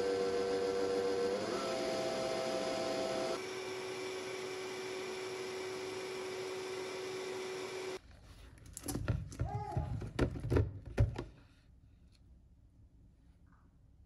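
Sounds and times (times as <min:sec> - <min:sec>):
blender motor whining: 0:00.0 - 0:08.0.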